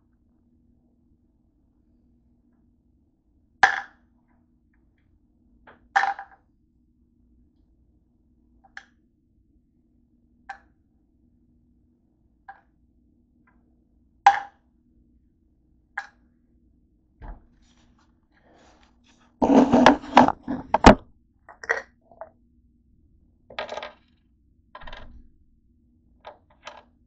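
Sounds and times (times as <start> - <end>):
tablets clicking on wooden desk: 19.4 - 21.8, 26.3 - 26.9.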